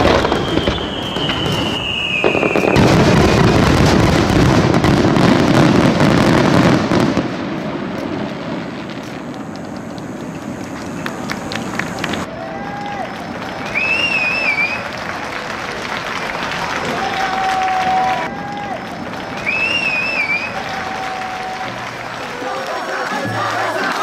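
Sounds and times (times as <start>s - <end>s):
firework whistle falling in pitch: 0.0s - 3.2s, 11.0s - 14.9s, 19.4s - 21.8s
fireworks bursting and crackling: 0.0s - 24.0s.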